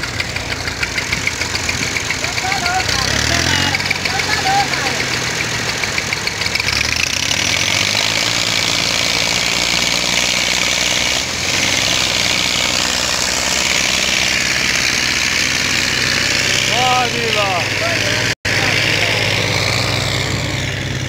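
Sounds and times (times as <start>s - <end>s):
tractor engines under heavy load: 0.0s - 21.0s.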